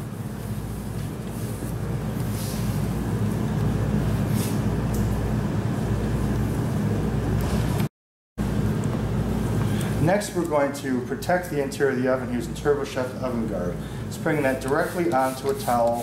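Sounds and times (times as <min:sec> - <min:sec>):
steady low hum: 0:00.0 - 0:16.0
cloth wiping steel: 0:14.3 - 0:16.0.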